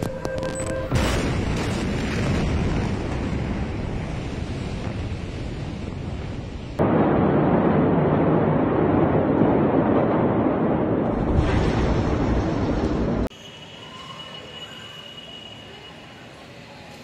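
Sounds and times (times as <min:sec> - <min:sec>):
rumbling rushing noise: 0:00.9 - 0:13.3.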